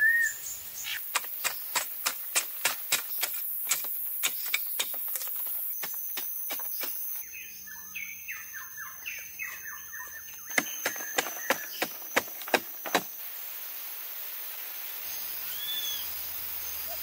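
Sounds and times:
blade chopping into packed earth: 0:10.5 - 0:13.1.

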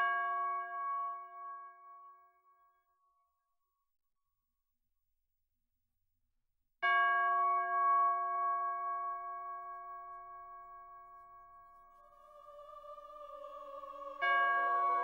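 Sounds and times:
bell-like tone ringing: 0:09.1 - 0:15.0.

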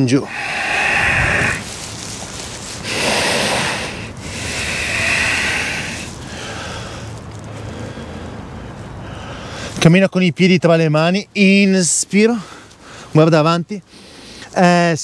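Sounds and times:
person breathing slowly: 0:00.2 - 0:09.8, 0:12.4 - 0:13.2, 0:13.8 - 0:14.6.

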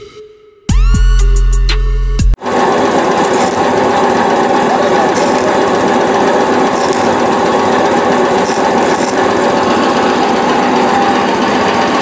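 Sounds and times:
welding machine drone: 0:02.4 - 0:12.0
arc welding crackle: 0:03.1 - 0:03.8, 0:05.1 - 0:05.8, 0:06.6 - 0:07.3, 0:08.4 - 0:09.3.

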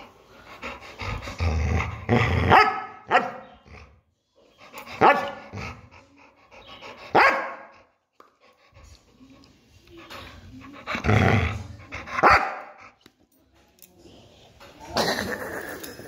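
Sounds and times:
dog barking: 0:02.5 - 0:03.5, 0:05.0 - 0:05.4, 0:07.1 - 0:07.7, 0:12.2 - 0:12.8.

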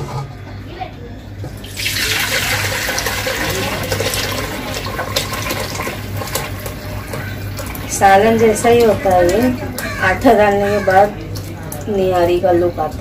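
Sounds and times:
liquid pouring into a pot: 0:01.6 - 0:09.5.

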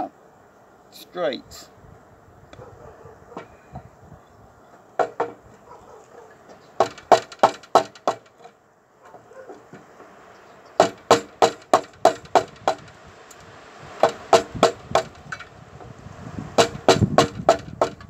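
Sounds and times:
mallet striking chisel into wood: 0:06.8 - 0:08.3, 0:10.8 - 0:12.8, 0:16.6 - 0:18.0.

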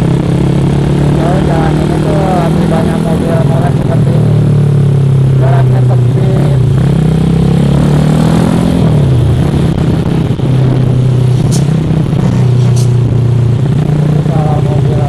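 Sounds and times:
motorcycle engine running: 0:00.0 - 0:15.0
wind and road noise: 0:00.0 - 0:15.0.

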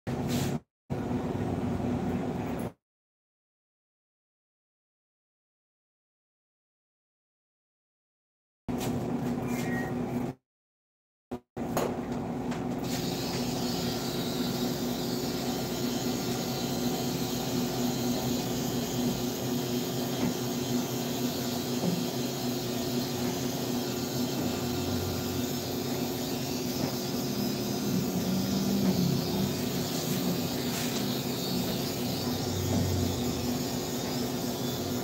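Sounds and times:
steady hum: 0:12.8 - 0:35.0
hiss: 0:12.9 - 0:34.9.

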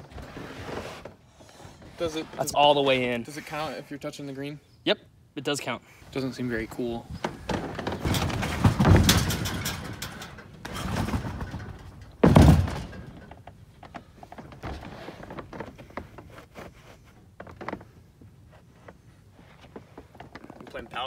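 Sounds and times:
trampoline bed thumping: 0:07.2 - 0:13.5.

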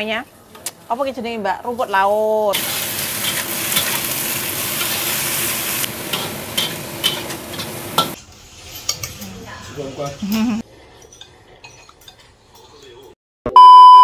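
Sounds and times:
food sizzling in a frying pan: 0:01.7 - 0:10.4.

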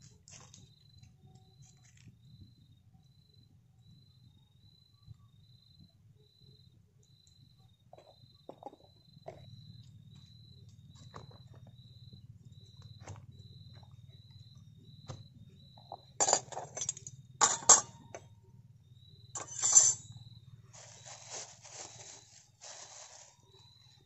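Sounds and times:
metal spoons clattering: 0:16.2 - 0:18.1, 0:19.4 - 0:20.1
plastic bag crinkling: 0:20.8 - 0:23.3.

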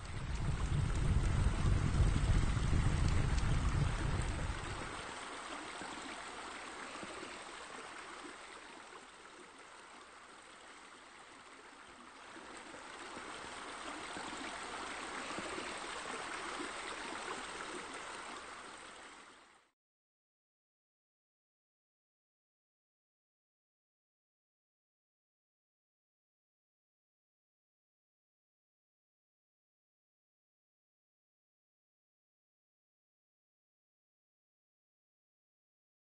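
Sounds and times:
low rumble: 0:00.0 - 0:04.9
steady rushing noise: 0:00.0 - 0:05.1.

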